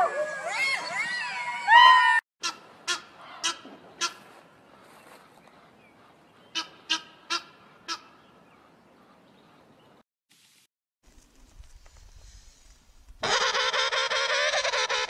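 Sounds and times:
goose honking: 0:06.6 - 0:08.2.

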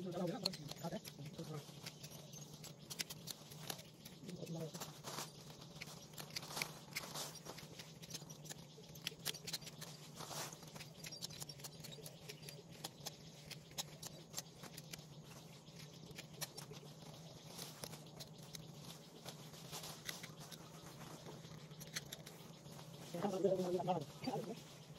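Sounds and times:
leaves and twigs crackling: 0:00.0 - 0:24.9
steady low hum: 0:00.0 - 0:24.9.

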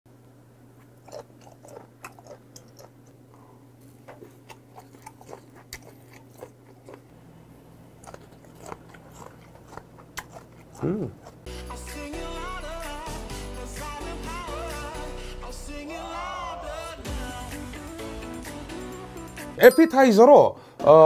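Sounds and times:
wet chewing mouth clicks: 0:01.0 - 0:03.2, 0:04.0 - 0:07.1, 0:08.0 - 0:11.5.

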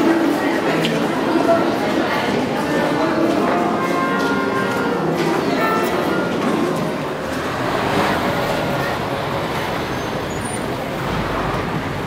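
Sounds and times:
road traffic passing: 0:04.7 - 0:12.0.

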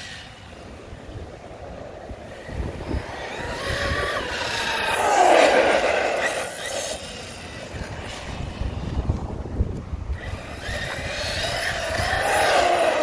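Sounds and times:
wind rumbling on microphone: 0:00.0 - 0:13.0
electric motor whining: 0:02.4 - 0:08.9, 0:10.1 - 0:13.0.

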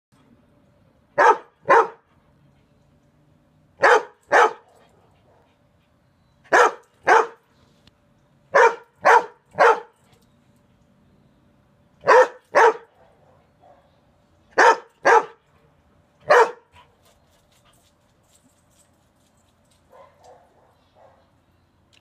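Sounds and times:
dog barking: 0:01.2 - 0:02.0, 0:03.8 - 0:04.6, 0:06.5 - 0:07.4, 0:08.5 - 0:09.9, 0:12.0 - 0:13.9, 0:14.6 - 0:15.4, 0:16.2 - 0:16.7, 0:19.9 - 0:21.3.

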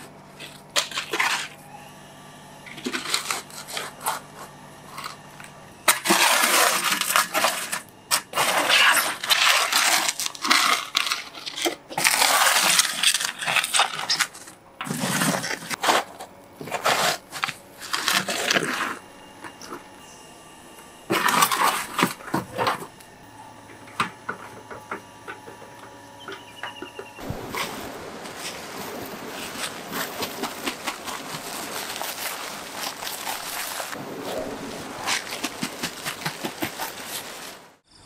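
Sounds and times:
metal shovel scraping ash: 0:05.8 - 0:19.8, 0:21.1 - 0:22.9.

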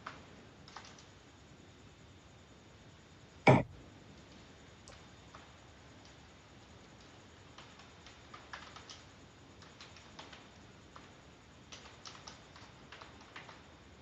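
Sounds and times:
typing on a keyboard: 0:00.0 - 0:01.1, 0:07.0 - 0:11.1, 0:11.7 - 0:13.8.

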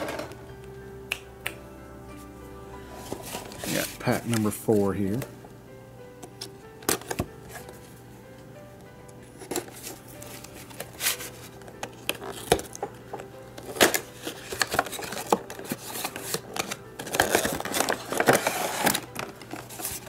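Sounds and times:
rustling and scraping: 0:02.9 - 0:04.4, 0:09.4 - 0:12.7, 0:13.6 - 0:20.0.

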